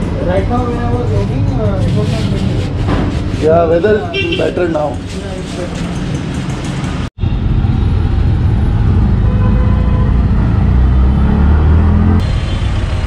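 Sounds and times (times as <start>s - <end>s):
city traffic: 0.0s - 13.0s
auto-rickshaw engine droning: 4.6s - 13.0s.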